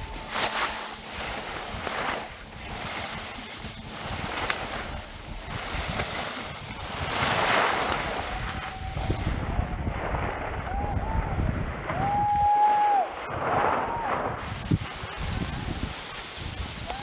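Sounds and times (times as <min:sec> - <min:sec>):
skis scraping over wet snow: 0:00.0 - 0:10.6, 0:13.2 - 0:17.0
wind buffeting microphone: 0:00.0 - 0:17.0.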